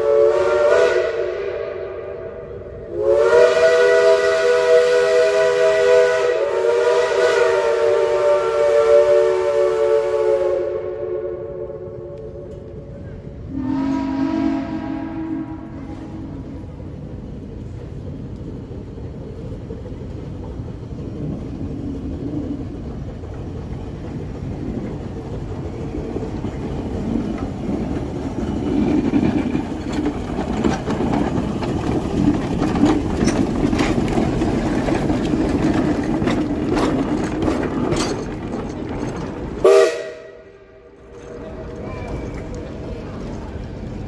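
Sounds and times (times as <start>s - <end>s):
steam locomotive rumbling: 0.0s - 44.0s
locomotive clanks and knocks: 26.1s - 39.7s.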